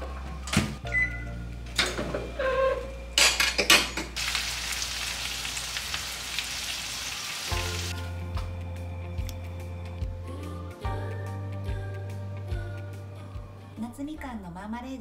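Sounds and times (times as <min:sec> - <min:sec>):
chicken sizzling on baking tray: 0:04.2 - 0:08.0
background music: 0:07.5 - 0:15.0.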